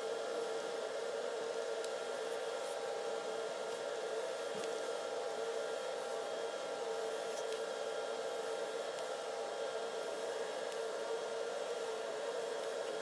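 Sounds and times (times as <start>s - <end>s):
metal lathe motor whine: 0.0s - 13.0s.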